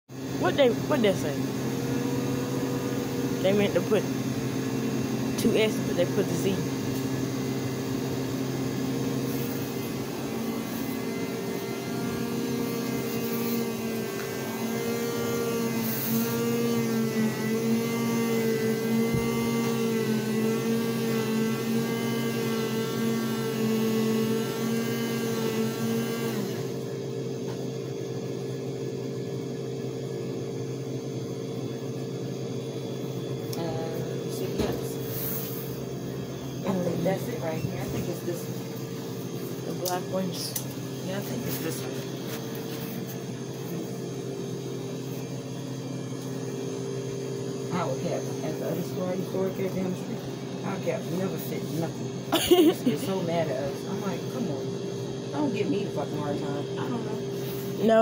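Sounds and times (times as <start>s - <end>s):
coffee machine motor whine: 0.1s - 58.0s
low background hum: 31.6s - 58.0s.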